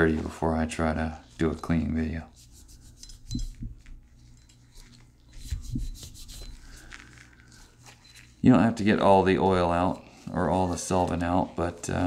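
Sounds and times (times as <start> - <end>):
cloth rag rubbing metal: 0.0 - 12.0.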